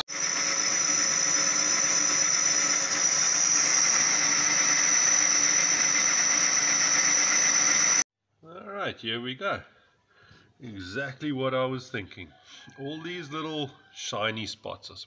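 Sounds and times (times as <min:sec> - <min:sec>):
metal lathe cutting with high whine: 0:00.0 - 0:08.0.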